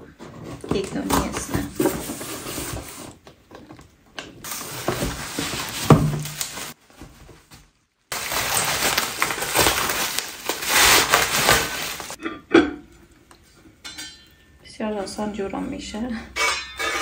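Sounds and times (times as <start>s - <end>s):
cardboard scraping and rustling: 0.1s - 3.2s, 4.4s - 12.2s
packaging crinkling: 4.4s - 7.0s, 8.1s - 12.2s.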